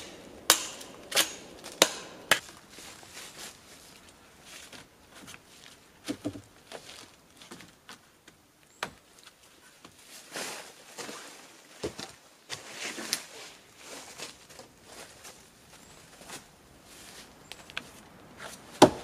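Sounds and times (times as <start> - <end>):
rustling and scraping: 0.8 - 8.1, 9.2 - 18.8.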